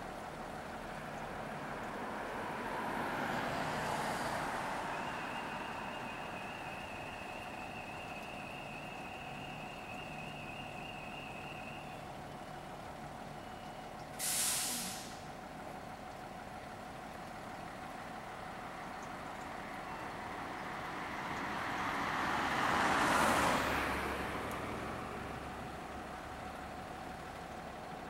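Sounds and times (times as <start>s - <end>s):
diesel engine running: 0.0s - 28.0s
air brakes hissing: 14.2s - 15.4s.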